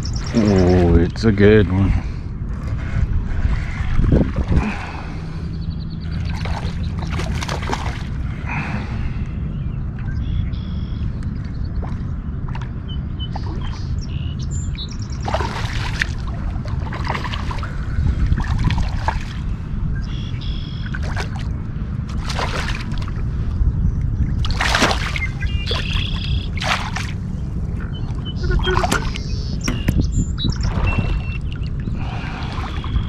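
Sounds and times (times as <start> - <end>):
birds chirping: 0.0 - 16.0, 19.0 - 21.2, 23.4 - 33.0
low wind rumble on microphone: 0.0 - 33.0
fish splashing at surface: 24.5 - 26.0.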